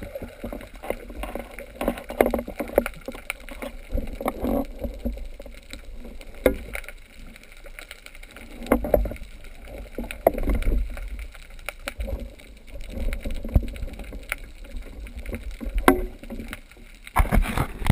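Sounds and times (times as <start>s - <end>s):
underwater rumble of moving water: 0.0s - 17.9s
sharp clicks and knocks: 15.2s - 17.9s.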